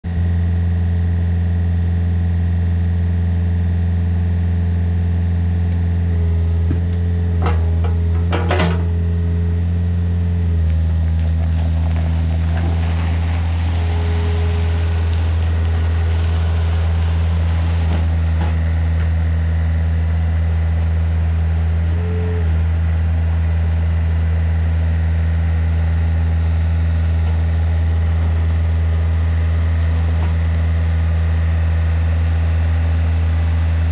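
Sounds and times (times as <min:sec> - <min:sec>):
excavator diesel engine running: 0:00.1 - 0:33.9
rushing hiss: 0:12.4 - 0:18.2.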